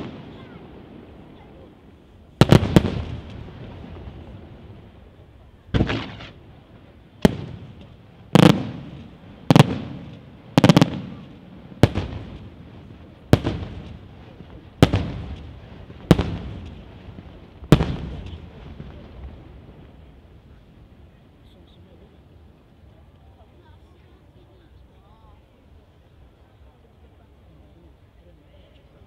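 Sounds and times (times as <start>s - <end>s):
firework shells bursting: 5.7s - 6.6s.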